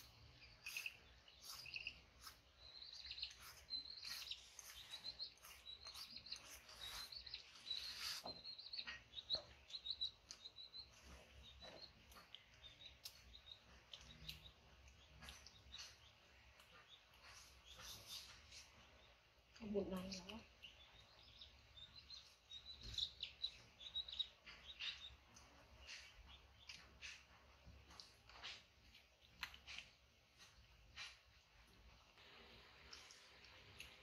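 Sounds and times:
knife peeling fruit: 0.0 - 10.8
faint bird chirping: 0.0 - 34.0.

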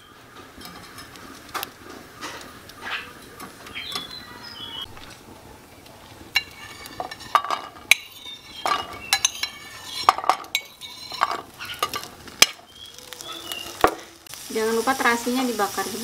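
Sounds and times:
metal spoon scraping ceramic plate: 6.4 - 12.1.

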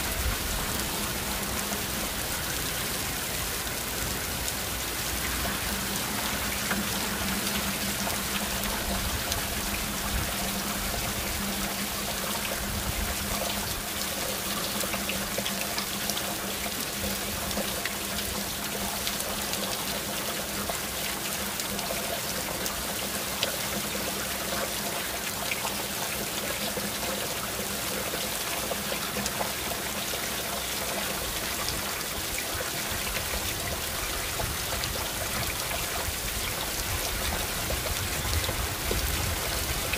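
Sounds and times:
heavy rain hissing: 0.0 - 14.6
raindrops ticking on surfaces: 0.0 - 39.9.

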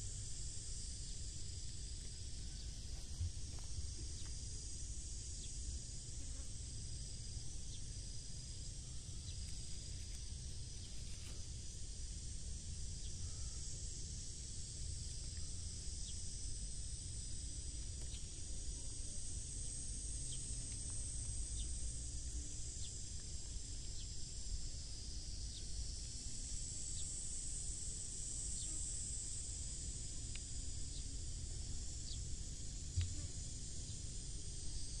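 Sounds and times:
low rumble on microphone: 0.0 - 4.9
insects chirring: 0.0 - 35.0
faint ticks: 9.2 - 11.4, 15.0 - 15.6, 20.3 - 21.7, 30.2 - 31.1, 32.9 - 33.4.

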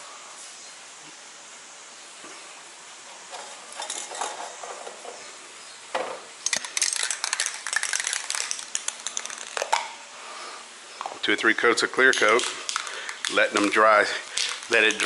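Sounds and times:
metal cans clinking and rattling: 3.2 - 5.3, 6.0 - 10.0, 12.1 - 15.0.

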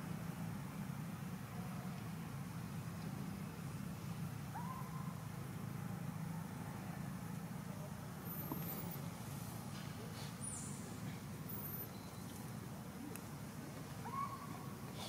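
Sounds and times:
faint high-pitched chirps: 8.2 - 9.0, 10.4 - 12.4.

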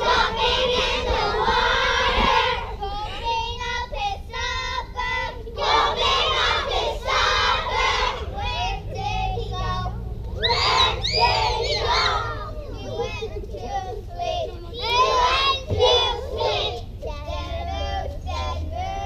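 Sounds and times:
children singing together: 0.0 - 19.0
loud high shouts: 10.4 - 12.5.

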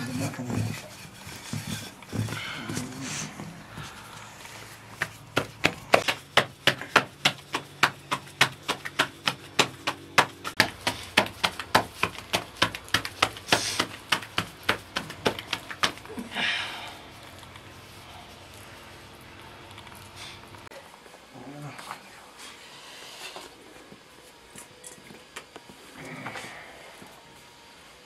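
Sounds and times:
dough slapping between palms: 4.7 - 16.3.

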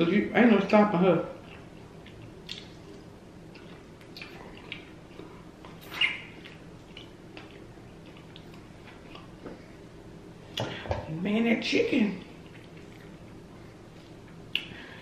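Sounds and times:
faint low hum: 0.0 - 15.0
wet mouth clicks and lip smacks: 2.0 - 5.0, 14.5 - 14.7.

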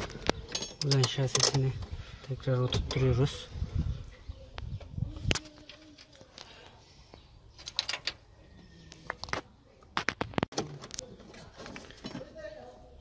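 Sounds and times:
light metallic clicks and knocks: 0.1 - 3.1.

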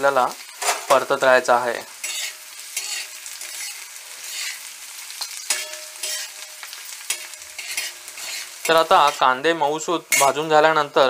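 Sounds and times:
onions sizzling in oil: 0.0 - 11.0
steel spatula scraping: 2.0 - 10.5.

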